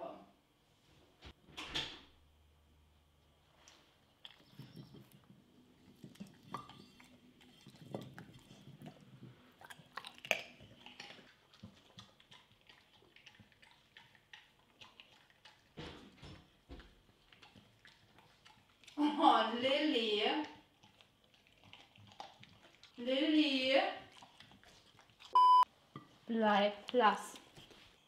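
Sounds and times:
dog chewing: 4.1s - 19.0s, 20.3s - 23.0s, 24.0s - 25.5s.

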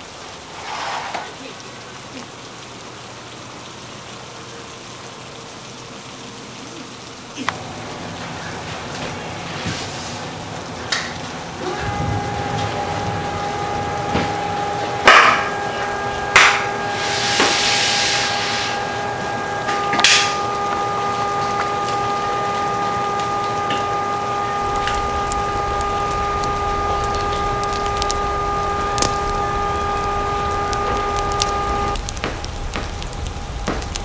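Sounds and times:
steady rain: 0.0s - 34.0s
sustained chord of held tones: 7.5s - 32.0s.

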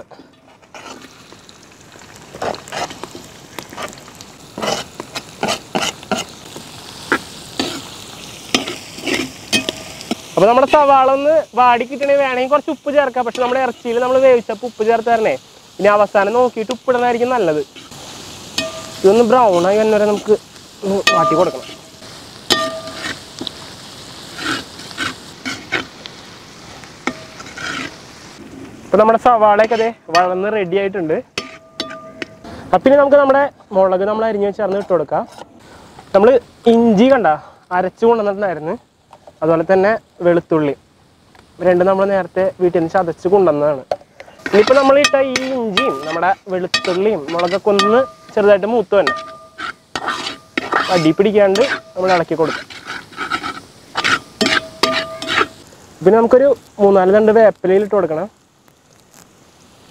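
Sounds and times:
onions sizzling in hot oil: 0.0s - 59.9s
ladle scraping metal pan: 4.6s - 6.4s, 7.1s - 7.9s, 8.5s - 10.4s, 21.0s - 23.5s, 24.2s - 25.9s, 27.0s - 28.0s, 29.6s - 30.4s, 31.4s - 32.6s, 44.2s - 55.6s
ladle clinking on pan: 9.5s - 10.0s, 18.6s - 19.0s, 22.5s - 23.1s, 31.4s - 32.4s, 46.8s - 48.4s, 49.0s - 50.9s, 54.0s - 55.6s
metal spoon scraping and clicking: 49.1s - 55.6s.

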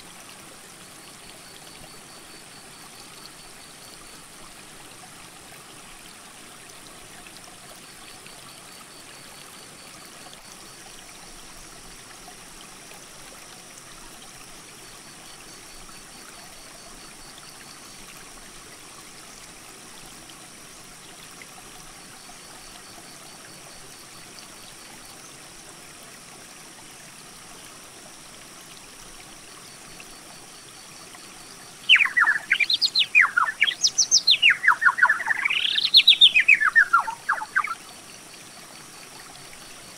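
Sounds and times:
creek running over rocks: 0.0s - 39.9s
bird singing quick whistles: 31.9s - 37.8s.

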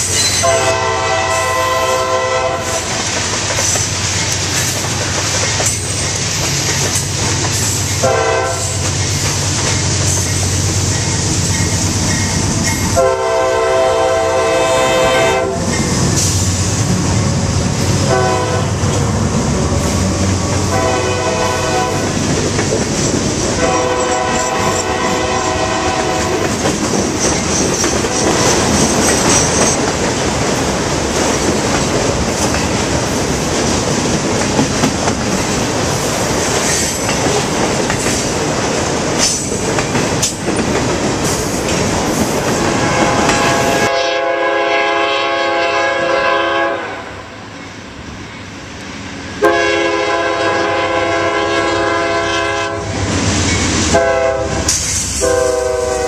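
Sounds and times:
train wheels clattering on rails: 0.0s - 1.5s, 2.6s - 13.1s, 15.6s - 43.9s, 53.0s - 56.0s
freight train rumbling: 0.0s - 56.0s
locomotive air horn blasts: 0.4s - 3.0s, 8.0s - 8.8s, 13.0s - 15.7s, 18.0s - 18.8s, 20.6s - 22.2s, 23.6s - 26.5s, 42.6s - 47.3s, 49.4s - 53.0s, 53.9s - 56.0s.

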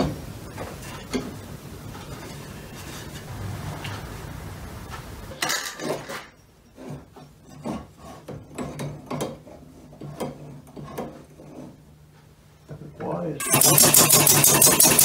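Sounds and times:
loud rush of air: 3.2s - 5.4s.

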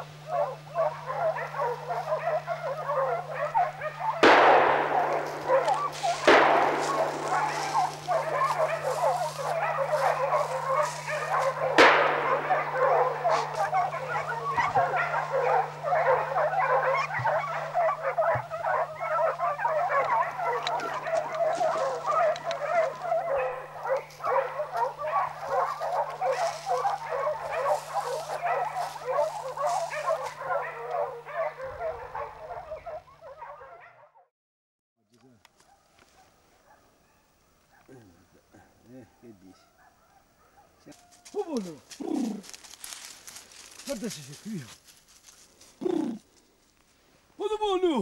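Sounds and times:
hounds baying and barking: 0.0s - 34.3s, 35.5s - 46.3s
gunshots echoing: 4.1s - 16.4s.

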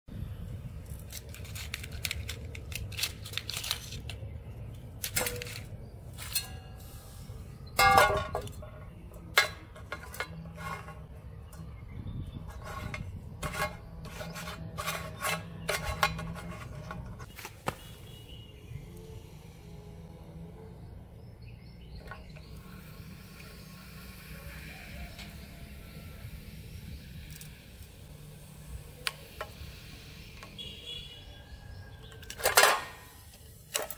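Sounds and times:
plastic toys clicking and knocking: 1.1s - 4.3s.

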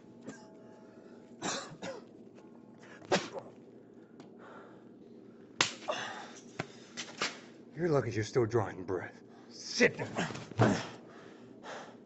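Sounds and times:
person coughing: 1.4s - 2.1s, 3.0s - 3.5s.

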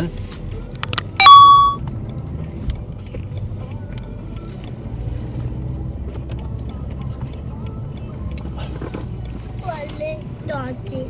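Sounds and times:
engine and road rumble: 0.0s - 1.2s, 1.8s - 11.0s
electronic beep: 1.0s - 1.8s.

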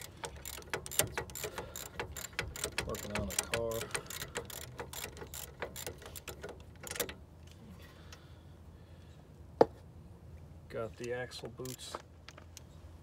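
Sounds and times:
small metallic clicks: 0.0s - 8.2s, 11.0s - 12.8s.

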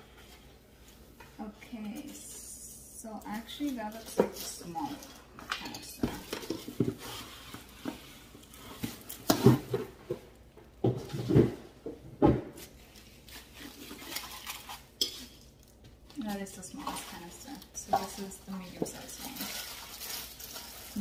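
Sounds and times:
rustling of packing: 16.2s - 21.0s.

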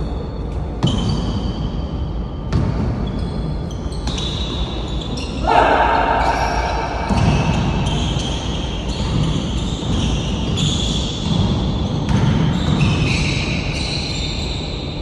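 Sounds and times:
basketball game noise: 0.0s - 14.9s
basketball bouncing on a court: 2.5s - 4.6s, 5.8s - 13.8s.

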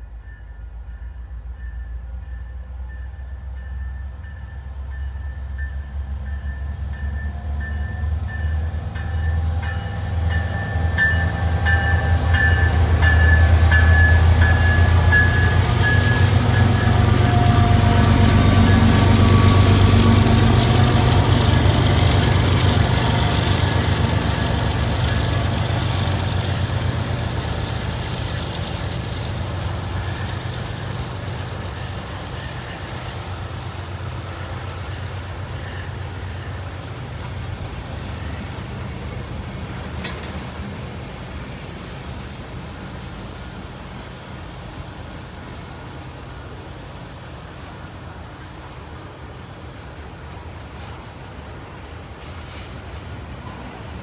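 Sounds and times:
freight train passing: 0.0s - 54.0s.

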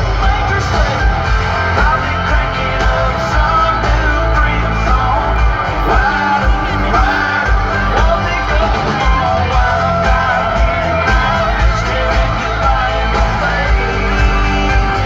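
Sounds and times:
live band music: 0.0s - 15.0s
person singing: 0.0s - 15.0s
pulsing bass beat: 0.0s - 15.0s.

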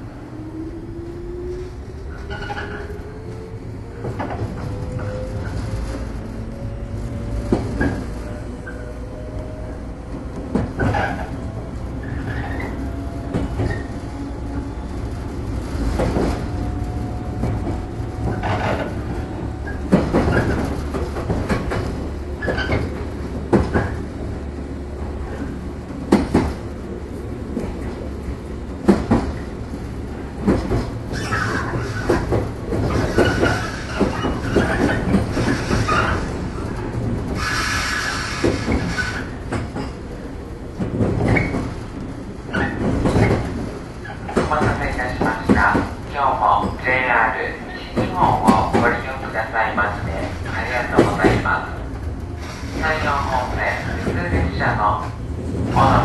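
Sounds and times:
train low rumble: 0.0s - 56.0s
wheels clacking over rail joints: 2.1s - 56.0s
wheel squeal: 31.1s - 32.2s, 32.9s - 36.3s.

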